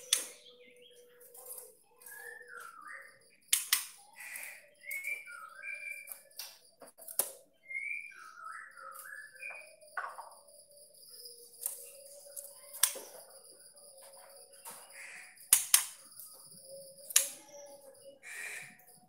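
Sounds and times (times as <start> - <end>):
bird whistled chirps: 0.0 - 6.4, 7.5 - 13.9.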